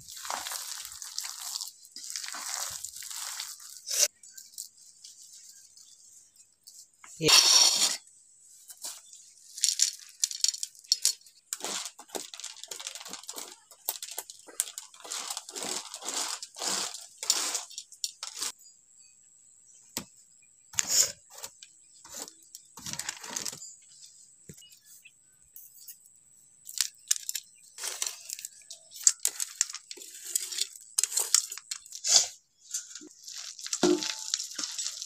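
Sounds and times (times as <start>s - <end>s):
hands scraping and rustling paste: 0.0s - 6.9s, 8.7s - 18.6s, 26.7s - 35.0s.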